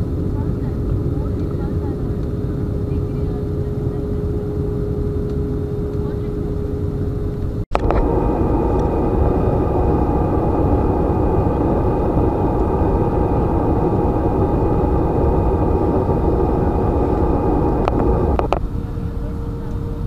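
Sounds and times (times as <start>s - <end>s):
faint whining tones: 0.1s - 20.0s
vehicle engine droning: 7.7s - 20.0s.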